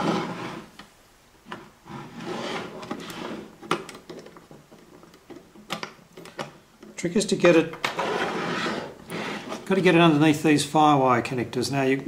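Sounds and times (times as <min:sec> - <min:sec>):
metal panel rubbing and scraping: 0:07.9 - 0:09.9.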